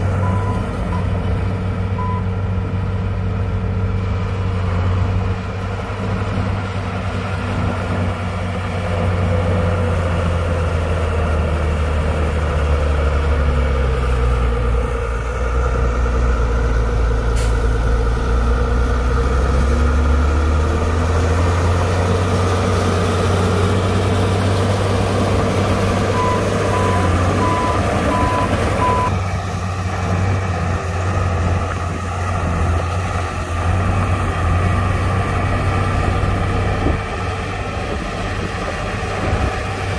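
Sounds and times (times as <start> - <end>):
heavy diesel engine running: 0.0 - 39.9
reversing alarm beeps: 0.2 - 1.1, 2.0 - 2.3, 26.1 - 29.1.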